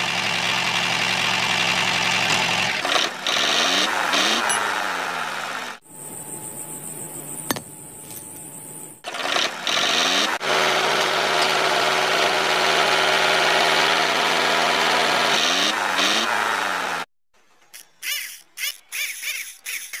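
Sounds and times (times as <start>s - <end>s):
small electric motors whirring: 7.5s - 11.6s, 17.7s - 20.0s.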